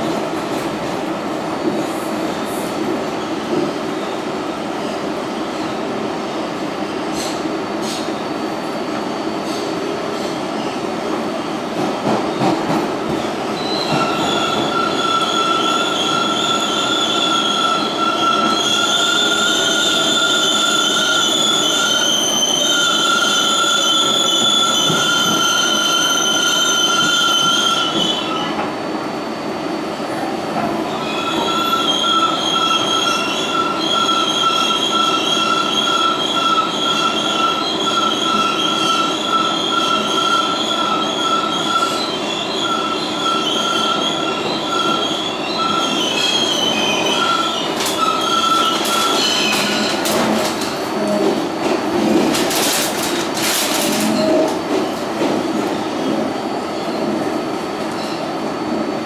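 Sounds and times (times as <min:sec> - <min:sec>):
high wheel squeal: 0:13.6 - 0:28.5, 0:30.9 - 0:50.0.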